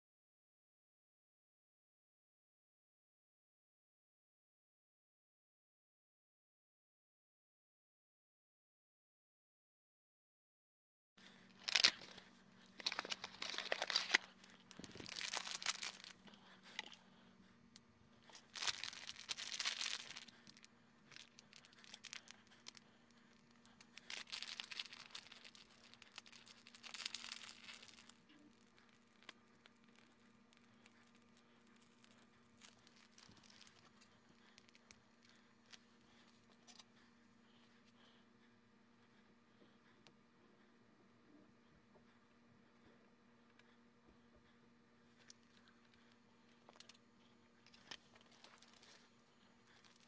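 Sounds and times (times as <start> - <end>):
faint steady hum: 11.2 - 50.0
wrapping rustling and tearing: 11.3 - 17.0, 18.2 - 36.9, 47.7 - 50.0.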